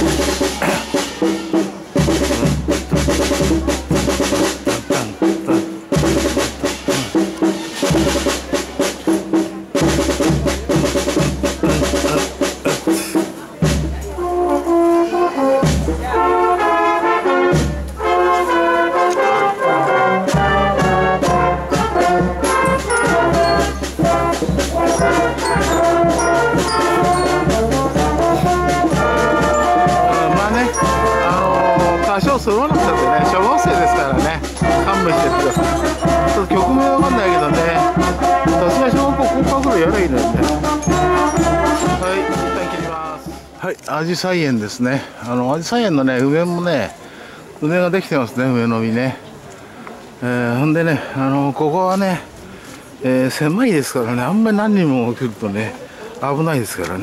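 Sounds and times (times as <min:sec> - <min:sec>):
marching drum beat: 0:00.0 - 0:16.7, 0:17.3 - 0:18.9, 0:19.5 - 0:43.6
brass melody: 0:00.0 - 0:43.6.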